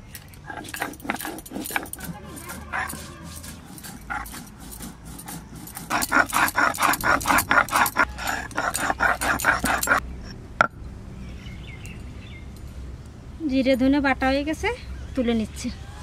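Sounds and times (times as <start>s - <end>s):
stone pestle grinding on slab: 0.0s - 10.0s.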